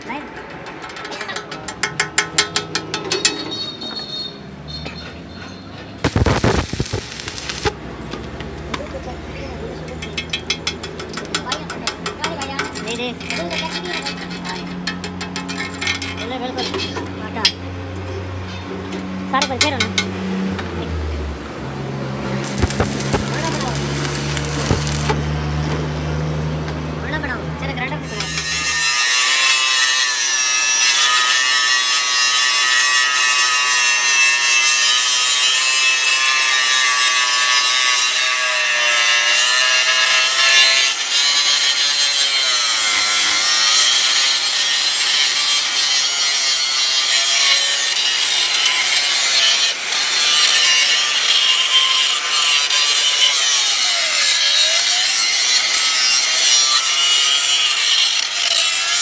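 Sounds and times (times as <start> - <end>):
angle grinder grinding steel: 5.5 - 7.8, 22.4 - 25.6, 28.0 - 59.0.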